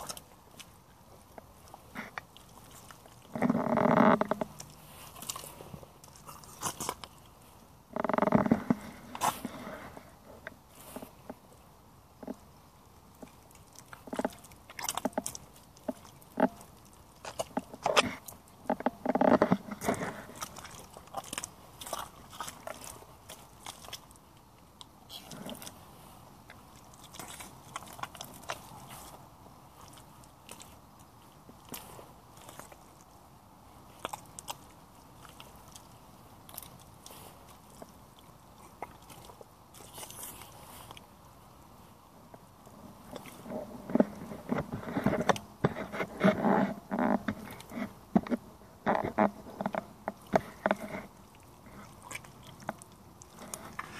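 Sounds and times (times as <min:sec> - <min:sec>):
rubber boots squelching in mud: 0:19.2 - 0:46.4.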